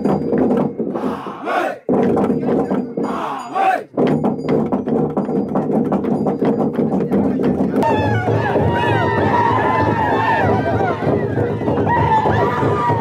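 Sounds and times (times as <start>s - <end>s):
fast irregular knocks: 0.0s - 1.2s, 1.8s - 3.1s, 3.9s - 13.0s
crowd shouting and chanting: 0.9s - 1.9s, 3.0s - 4.0s, 7.8s - 13.0s.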